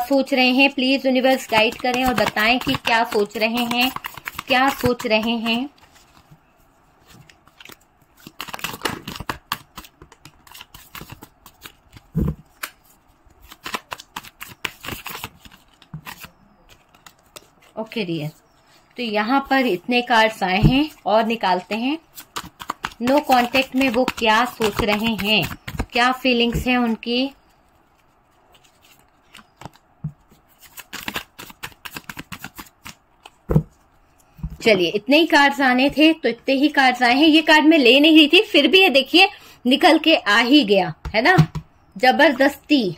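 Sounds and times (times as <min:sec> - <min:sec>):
cards being shuffled: 0:01.2 - 0:06.3, 0:07.0 - 0:17.8, 0:22.1 - 0:26.9, 0:28.0 - 0:33.8.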